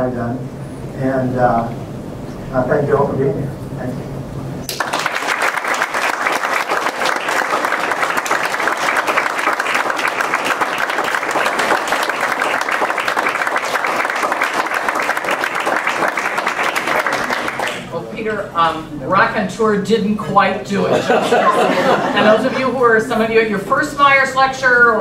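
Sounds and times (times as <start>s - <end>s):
audience applauding: 4.6s - 17.9s.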